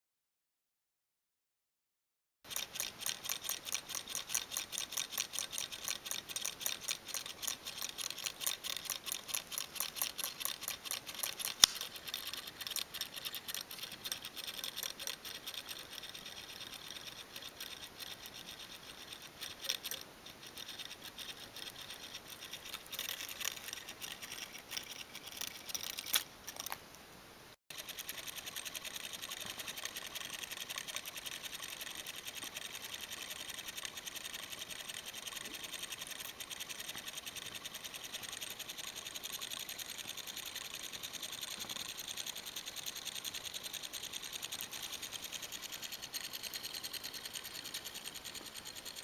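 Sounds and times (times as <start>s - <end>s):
electric motor buzzing clicks: 2.5s - 26.8s.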